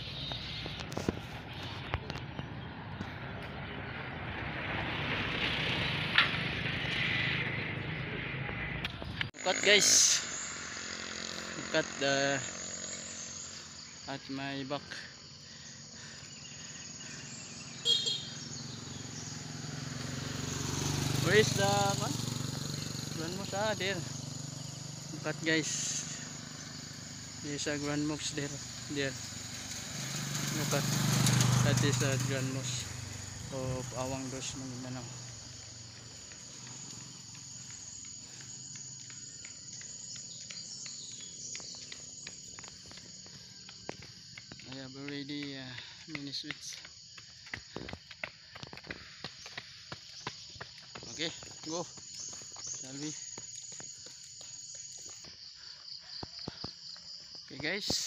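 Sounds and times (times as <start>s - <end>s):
insect hum: 0.0s - 58.0s.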